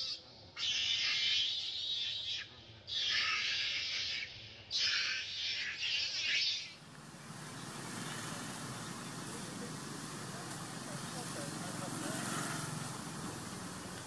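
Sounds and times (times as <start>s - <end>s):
monkey screaming: 0.6s - 6.8s.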